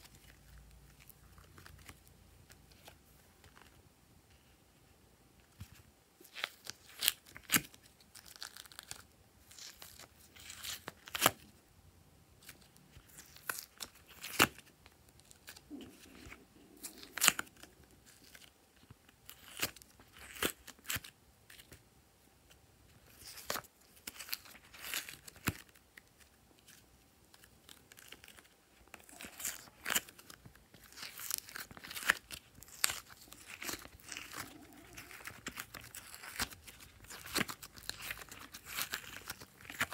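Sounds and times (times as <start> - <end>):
clay crackling in silicone mould: 22.4 - 39.9.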